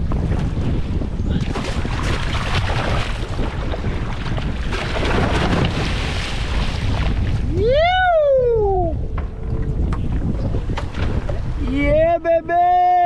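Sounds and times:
water splashing against hull: 0:00.0 - 0:12.4
wind buffeting microphone: 0:00.0 - 0:13.0
loud whoop: 0:07.5 - 0:09.0.

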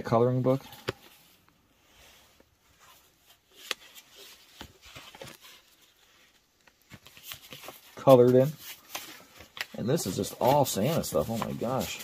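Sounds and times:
paper pages rustling: 0:02.3 - 0:12.0.

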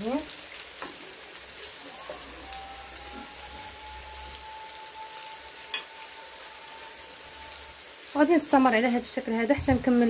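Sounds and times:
food frying in hot oil: 0:00.0 - 0:10.0
faint high tone: 0:01.8 - 0:07.9.

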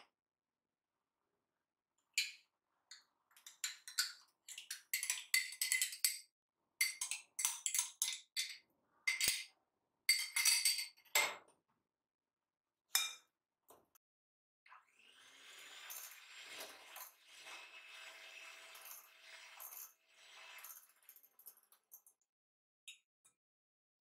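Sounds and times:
metal spoon clinking against glass: 0:10.1 - 0:11.0.

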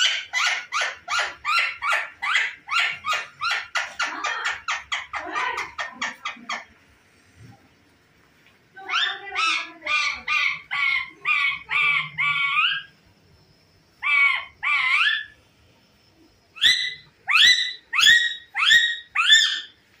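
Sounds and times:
parakeet calling: 0:00.0 - 0:06.8, 0:08.8 - 0:13.0, 0:14.0 - 0:15.5, 0:16.5 - 0:19.8.

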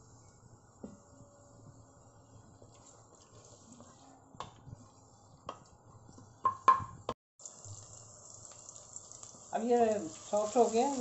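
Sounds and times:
wooden spoon knocking metal pan: 0:06.4 - 0:07.0
onions sizzling in oil: 0:07.4 - 0:11.0.

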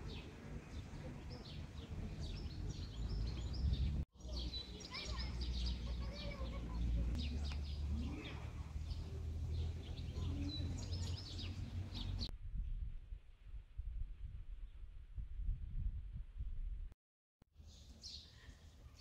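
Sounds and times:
wind rumbling on microphone: 0:00.0 - 0:04.0, 0:07.9 - 0:17.0
small birds chirping: 0:00.0 - 0:12.3, 0:17.6 - 0:19.0.

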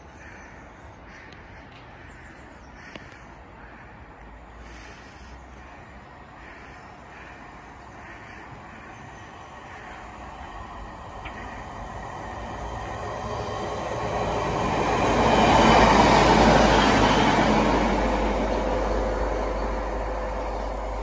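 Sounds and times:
diesel train passing: 0:00.0 - 0:21.0
train wheels on rails: 0:04.2 - 0:21.0.

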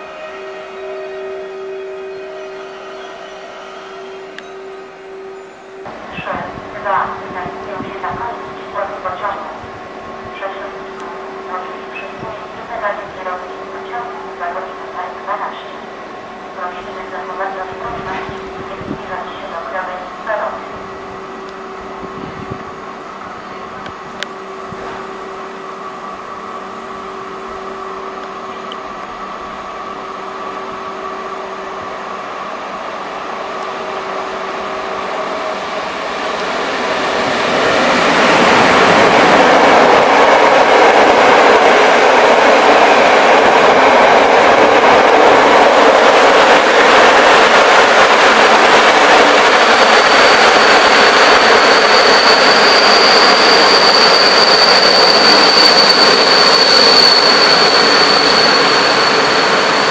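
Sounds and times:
train passing: 0:00.0 - 0:59.9
high thin squeal: 0:50.1 - 0:59.9.

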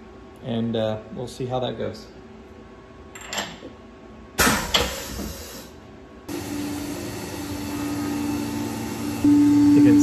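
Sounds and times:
milling machine spindle tone: 0:06.6 - 0:10.0.

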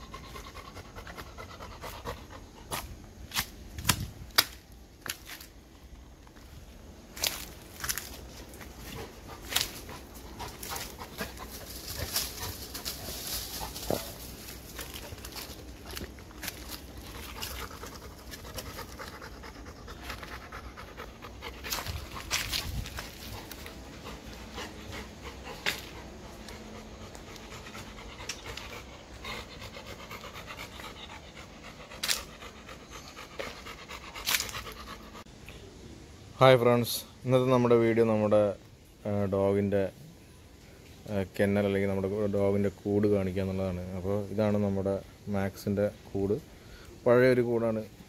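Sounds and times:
dog panting rapidly: 0:00.0 - 0:02.8, 0:08.8 - 0:35.3
dry leaves crunching underfoot: 0:06.3 - 0:18.8, 0:21.5 - 0:24.4.

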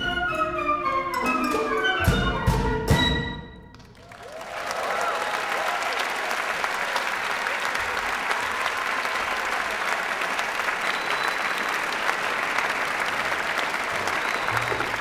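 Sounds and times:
low music notes: 0:00.0 - 0:03.7
audience applauding: 0:03.7 - 0:15.0.

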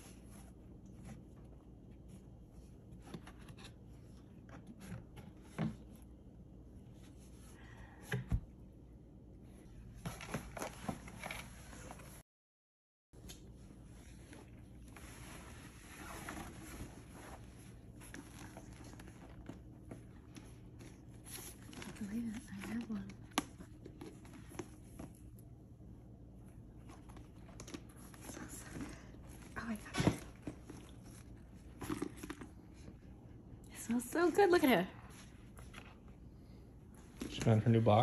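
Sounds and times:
handbag being handled: 0:30.4 - 0:32.9.

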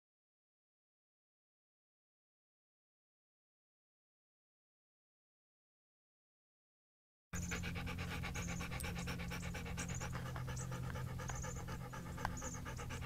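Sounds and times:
rapid panting: 0:07.4 - 0:13.0
steady low hum: 0:07.4 - 0:13.0.

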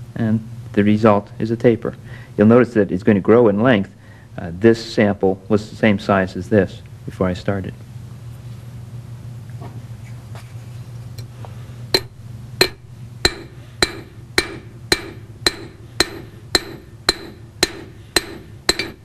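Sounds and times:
low steady hum: 0:00.0 - 0:19.0
hammer striking wire on anvil: 0:11.9 - 0:19.0.

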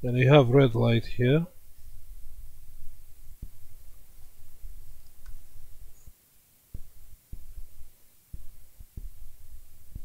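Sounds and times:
dull thumps: 0:02.2 - 0:06.0, 0:06.7 - 0:10.0.

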